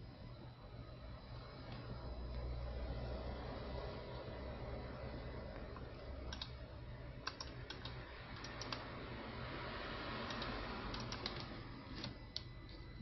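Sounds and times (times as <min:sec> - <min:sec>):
steady low hum: 0:00.0 - 0:13.0
light irregular clicks: 0:05.8 - 0:06.6, 0:07.2 - 0:08.8, 0:10.3 - 0:12.8.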